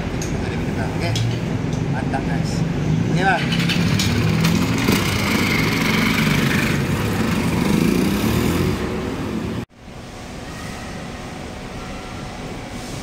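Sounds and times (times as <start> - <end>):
motorcycle engine accelerating: 3.4 - 9.6.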